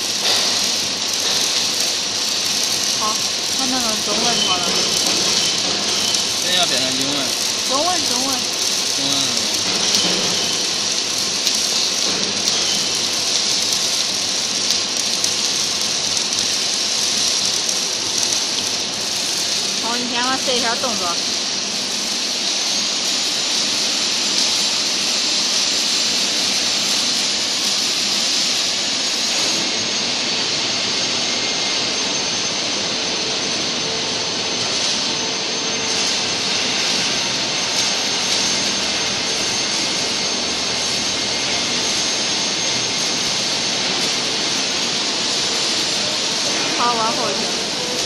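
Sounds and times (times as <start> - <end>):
rushing hiss of air: 0.0 - 31.1.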